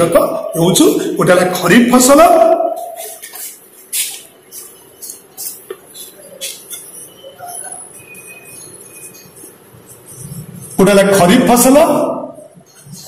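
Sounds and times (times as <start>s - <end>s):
marker writing on paper: 2.7s - 10.9s.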